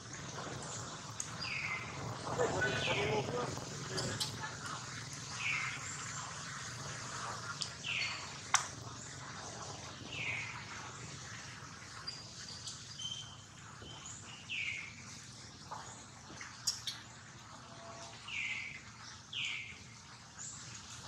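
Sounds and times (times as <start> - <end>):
birds chirping falling call: 1.3 - 6.1.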